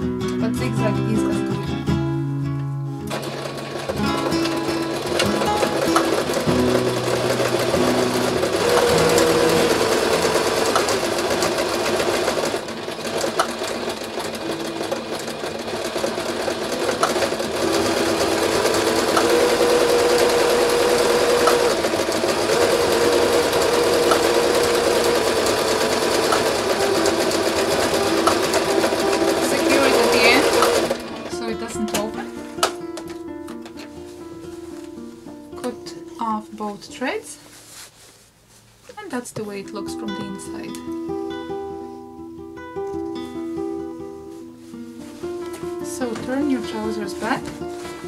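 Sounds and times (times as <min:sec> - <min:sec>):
sewing machine stitching: 0:03.1 - 0:32.8.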